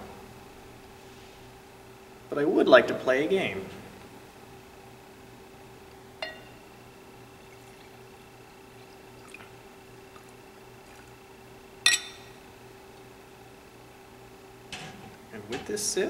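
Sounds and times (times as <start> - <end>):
glass clinking on glass: 6.2 - 6.6, 11.8 - 12.4
wine pouring into a glass: 7.3 - 11.3.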